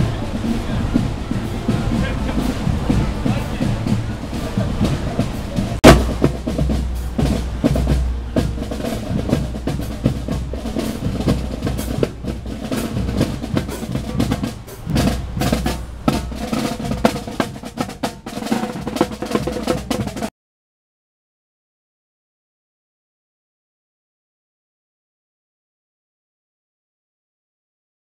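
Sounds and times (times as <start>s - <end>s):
snare and bass drums: 0.0s - 20.3s
steady band tone: 0.0s - 20.3s.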